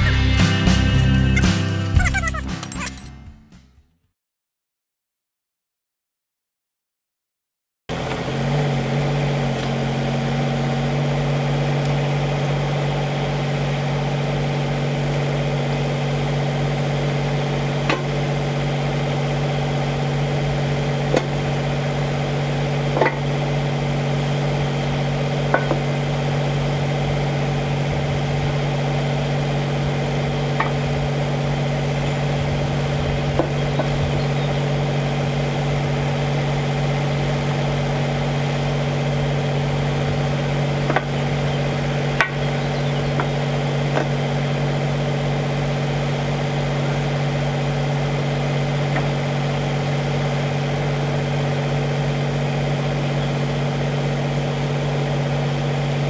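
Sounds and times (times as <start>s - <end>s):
diesel engine idling: 0.0s - 2.9s, 7.9s - 56.0s.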